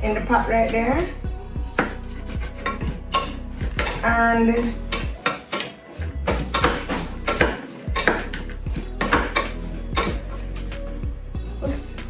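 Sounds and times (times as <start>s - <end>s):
wooden spoon scraping a pot: 1.8s - 5.9s.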